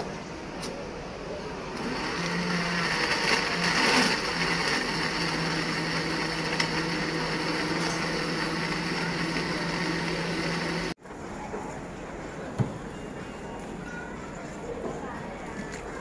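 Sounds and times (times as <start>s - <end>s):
blender running: 1.8s - 11.0s.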